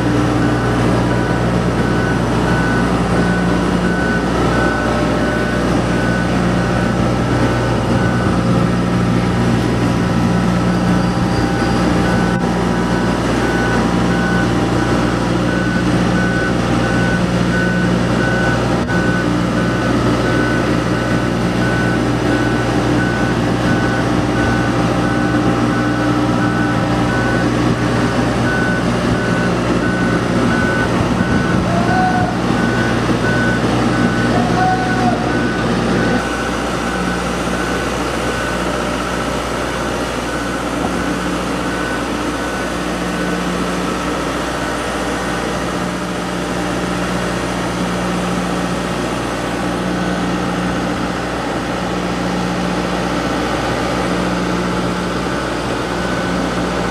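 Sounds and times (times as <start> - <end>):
boat hoist engine running: 0.0 - 56.9
high warning beeps: 0.4 - 9.2, 10.0 - 27.6, 28.4 - 39.3.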